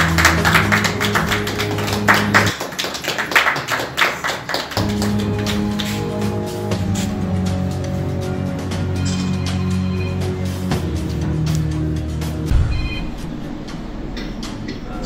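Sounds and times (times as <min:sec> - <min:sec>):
background music with low notes: 0:00.0 - 0:02.5, 0:04.7 - 0:15.0
group clapping in rhythm: 0:00.0 - 0:08.9.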